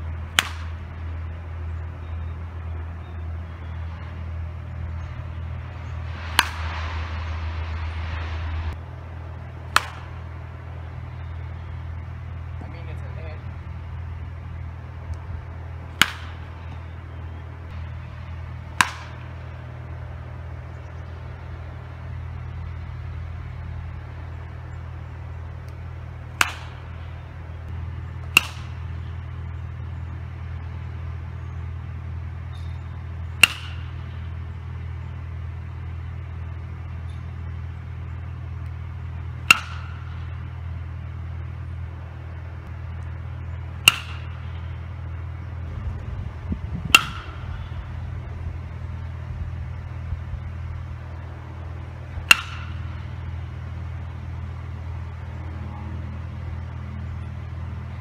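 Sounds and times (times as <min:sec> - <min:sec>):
steady low rumble: 0:00.0 - 0:58.0
baseball bat cracking balls: 0:00.2 - 0:01.4, 0:05.2 - 0:06.8, 0:09.4 - 0:11.5, 0:15.1 - 0:17.0, 0:17.7 - 0:22.8, 0:23.9 - 0:29.9, 0:32.3 - 0:34.8, 0:38.2 - 0:40.6, 0:42.6 - 0:44.9, 0:46.8 - 0:47.9, 0:51.6 - 0:55.3.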